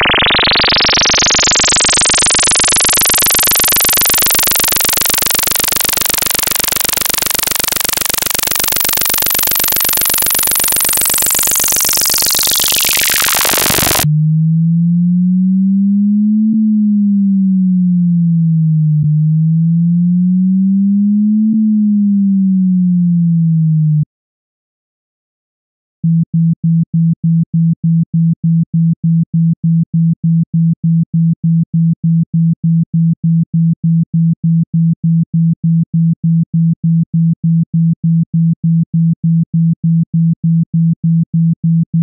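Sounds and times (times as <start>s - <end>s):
harsh buzzing tone sweeping down: 0.0s - 18.3s
deep pure tone: 0.0s - 24.1s.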